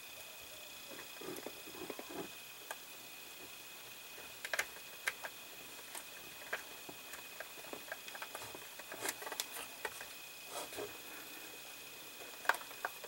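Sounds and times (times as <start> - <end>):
plastic parts clicking: 4.4 - 10.1, 12.3 - 13.0.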